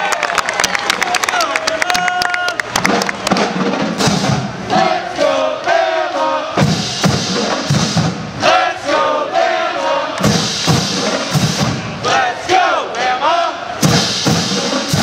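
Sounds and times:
crowd noise: 0:00.0 - 0:15.0
marching band brass: 0:02.5 - 0:15.0
steady drum beat: 0:02.6 - 0:12.3, 0:13.8 - 0:15.0.

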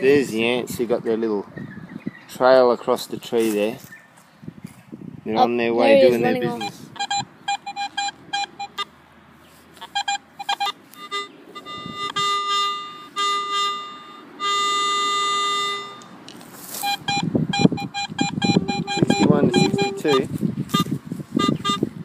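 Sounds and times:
metal detector beeping: 0:06.4 - 0:08.9, 0:09.8 - 0:21.9.

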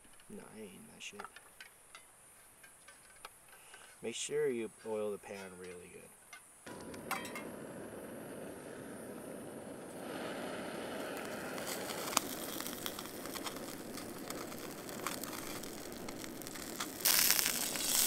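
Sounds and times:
camping stove hissing: 0:06.5 - 0:18.0.

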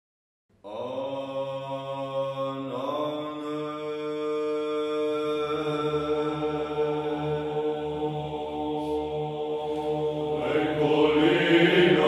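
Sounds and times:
choir chanting: 0:00.7 - 0:12.0
low drone: 0:05.1 - 0:12.0.

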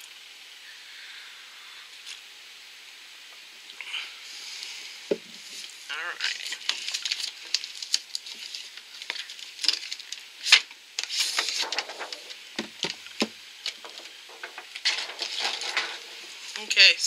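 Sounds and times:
cardboard box rustling: 0:06.4 - 0:16.6.

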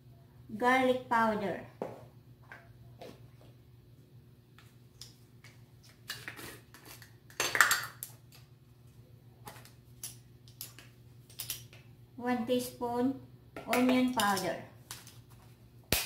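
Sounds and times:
plastic spoons clicking and rattling: 0:09.5 - 0:11.8.

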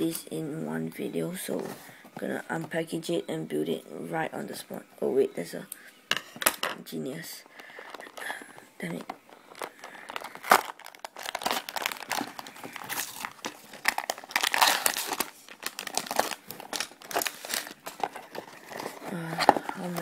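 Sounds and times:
plastic bags crinkling: 0:07.6 - 0:20.0
cardboard box tearing: 0:10.4 - 0:20.0.

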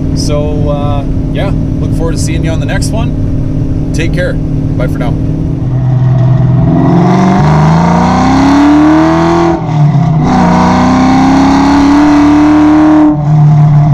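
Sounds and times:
car engine revving hard: 0:04.9 - 0:13.9.

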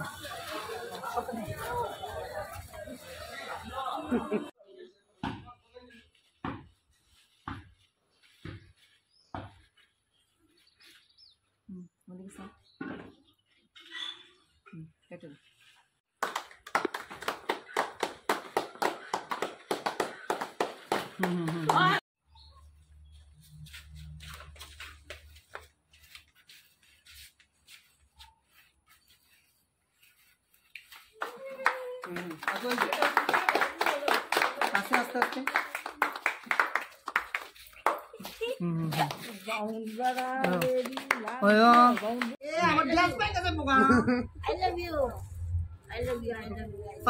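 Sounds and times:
bird chirp: 0:08.1 - 0:14.7, 0:22.2 - 0:24.2
people clapping: 0:16.1 - 0:22.0, 0:30.8 - 0:42.4.

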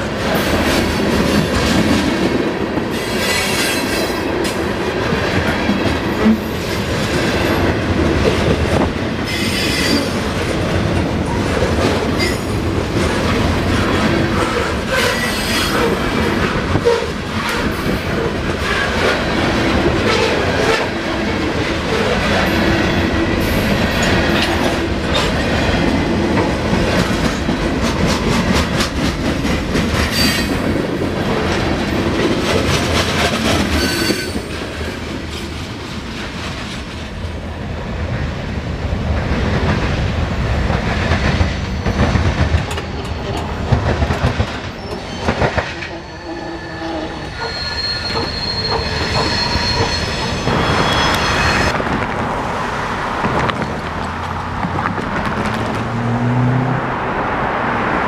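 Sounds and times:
thin high squeal: 0:45.9 - 0:51.7.

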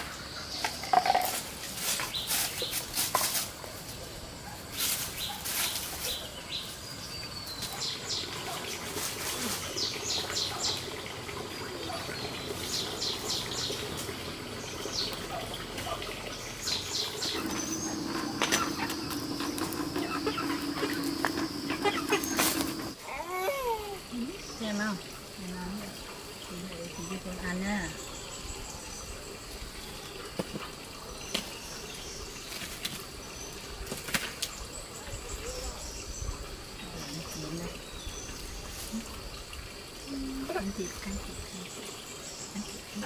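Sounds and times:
birds chirping: 0:03.9 - 0:33.8, 0:34.4 - 0:43.0
wood fire crackling: 0:17.2 - 0:23.0.

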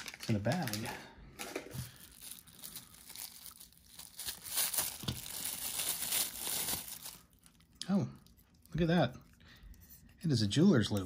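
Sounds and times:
bubble wrap crinkling: 0:00.0 - 0:01.1, 0:01.8 - 0:08.8.

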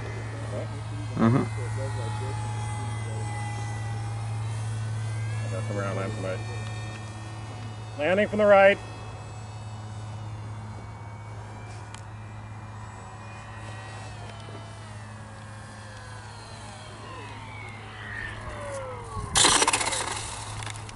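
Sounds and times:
model plane motor whining: 0:00.0 - 0:20.9
steady low hum: 0:00.0 - 0:20.9
plane skidding on pavement: 0:11.6 - 0:20.9.

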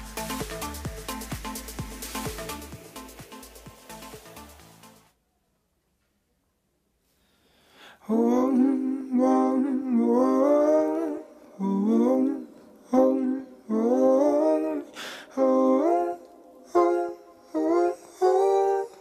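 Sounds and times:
person singing wordless melody: 0:07.9 - 0:19.0.

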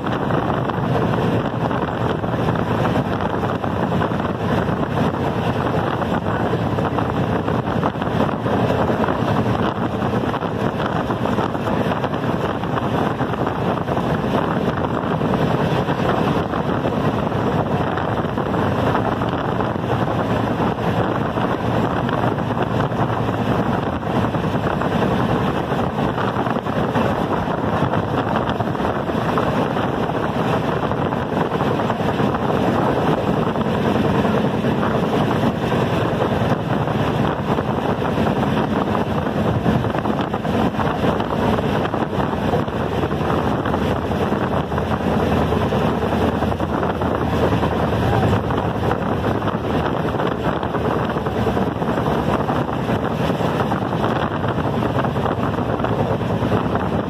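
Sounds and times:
train wheels on rails: 0:00.0 - 0:57.0
wind buffeting microphone: 0:00.0 - 0:57.0
wind rushing past: 0:00.0 - 0:57.0.

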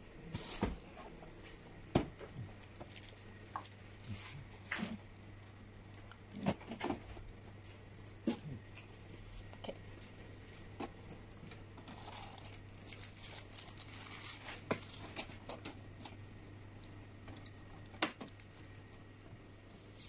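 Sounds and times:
plastic bag crinkling: 0:02.8 - 0:03.8, 0:11.8 - 0:15.3.

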